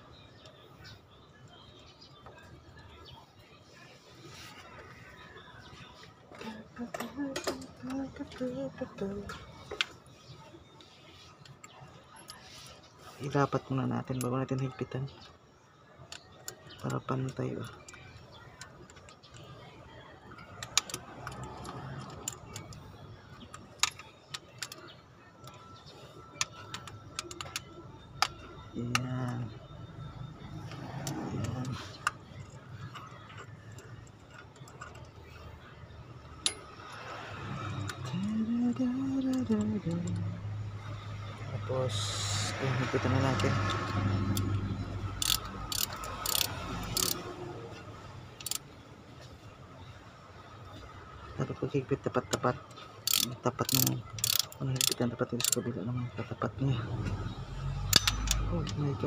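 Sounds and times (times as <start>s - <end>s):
socket wrench clinking on bolts: 36.4s - 36.9s, 45.2s - 47.2s, 57.9s - 58.8s
socket ratchet clicking: 44.2s - 47.2s, 48.4s - 48.6s, 53.1s - 55.6s, 57.9s - 58.8s.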